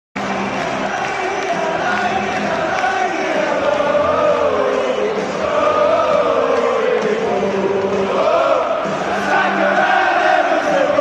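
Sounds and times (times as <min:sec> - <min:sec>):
crowd noise: 0:00.2 - 0:11.0
crowd singing a chant: 0:00.2 - 0:11.0.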